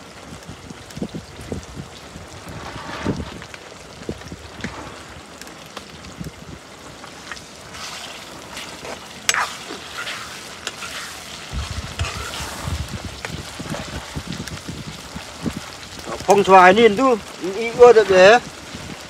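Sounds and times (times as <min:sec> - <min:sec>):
food sizzling in oil: 0:00.0 - 0:19.0
steel ladle scraping a pan: 0:07.7 - 0:13.0.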